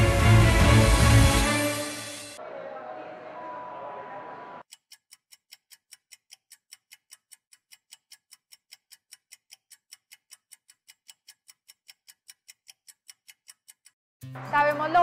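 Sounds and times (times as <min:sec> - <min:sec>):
rapid clock-like ticking: 0:04.6 - 0:14.0.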